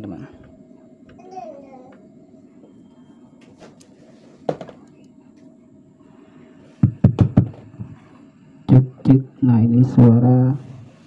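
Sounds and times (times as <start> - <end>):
sound system hum: 0.0 - 11.0
microphone knock: 6.8 - 8.0
heavy microphone thumps: 6.8 - 8.1.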